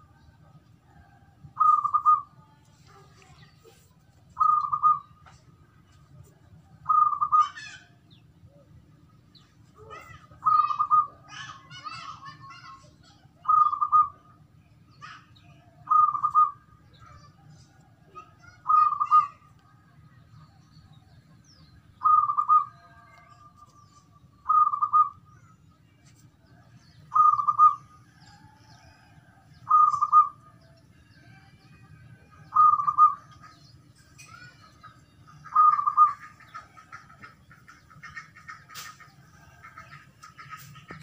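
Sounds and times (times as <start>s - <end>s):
dove cooing: 0.9s - 2.3s, 4.4s - 5.4s, 6.8s - 7.8s, 9.9s - 12.1s, 13.4s - 14.2s, 15.9s - 16.6s, 22.0s - 23.6s, 24.4s - 25.2s, 27.1s - 30.4s, 32.5s - 33.6s, 35.4s - 41.0s.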